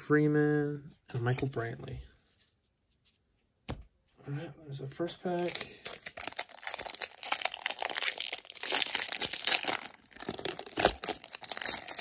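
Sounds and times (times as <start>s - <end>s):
foil wrapper crinkling and tearing: 5.3s - 12.0s.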